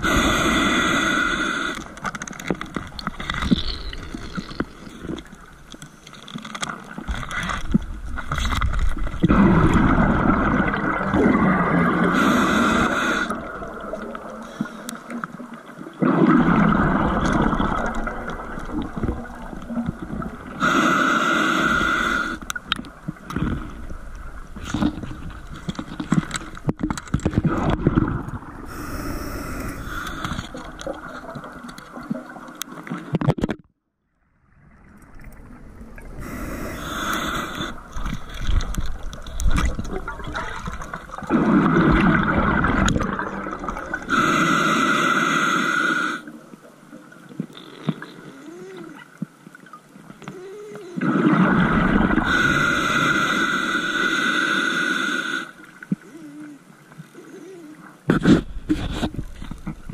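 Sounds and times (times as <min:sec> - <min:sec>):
regulator inhale hiss: 0:00.0 - 0:02.0, 0:12.1 - 0:13.5, 0:20.6 - 0:22.5, 0:28.7 - 0:30.6, 0:36.2 - 0:38.4, 0:44.1 - 0:46.3, 0:52.2 - 0:55.7
exhaled bubbles gurgling: 0:00.0 - 0:05.7, 0:06.8 - 0:33.1, 0:34.4 - 0:45.2, 0:47.0 - 0:53.6.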